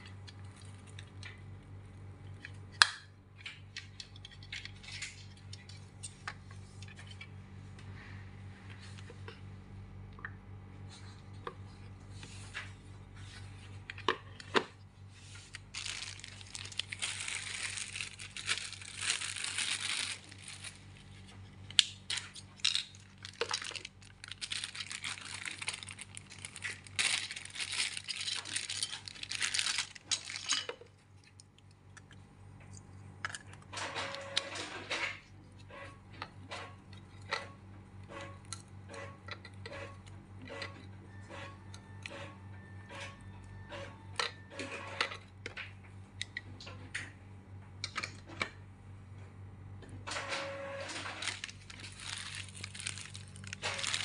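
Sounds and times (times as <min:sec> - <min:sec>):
steady low hum: 0:00.0 - 0:43.6
small parts clicking and knocking: 0:02.3 - 0:07.4, 0:21.6 - 0:34.5
plastic bags crinkling and tearing: 0:15.3 - 0:31.6, 0:50.9 - 0:54.0.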